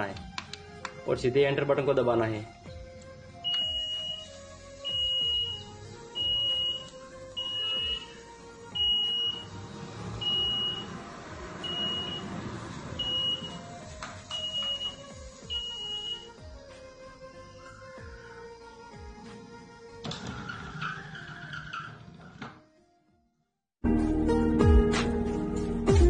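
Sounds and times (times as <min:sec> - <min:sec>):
background music: 0:00.0 - 0:21.2, 0:23.8 - 0:26.0
vending machine beeping: 0:03.4 - 0:08.2, 0:08.8 - 0:09.6, 0:10.2 - 0:11.0, 0:11.6 - 0:12.4, 0:13.0 - 0:13.6, 0:14.3 - 0:16.4.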